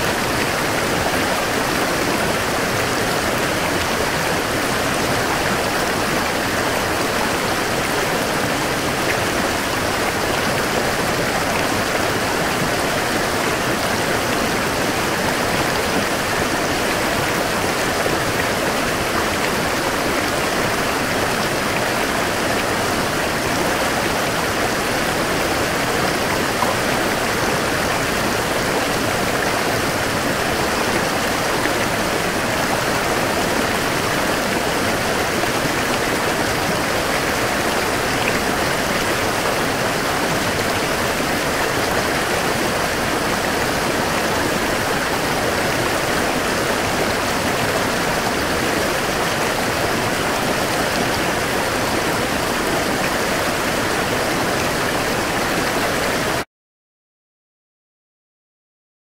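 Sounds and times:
running water rushing: 0.0s - 56.5s.

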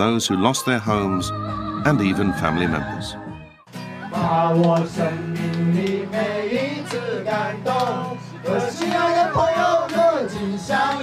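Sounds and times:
acoustic guitar: 0.0s - 11.0s
men singing together: 4.1s - 11.0s.

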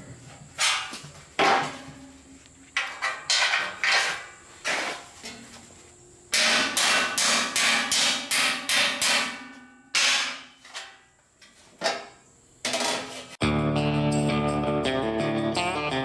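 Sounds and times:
hammer ringing on steel panel: 6.3s - 10.6s.

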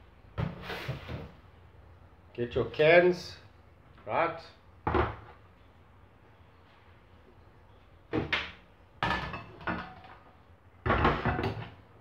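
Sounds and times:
cupboards and cookware clattering: 4.8s - 5.4s, 8.1s - 12.0s.

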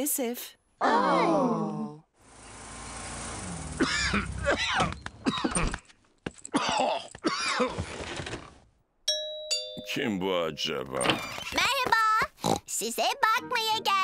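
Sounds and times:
cartoon character groaning and moaning: 0.8s - 2.1s.

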